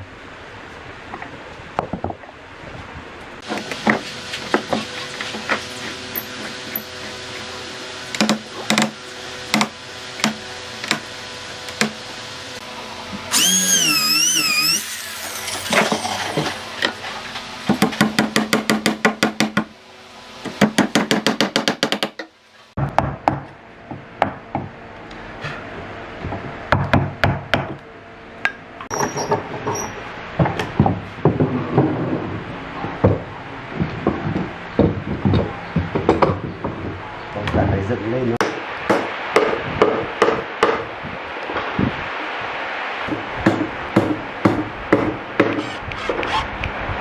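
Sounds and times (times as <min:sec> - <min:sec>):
warbling whine: 0:09.9 - 0:17.2.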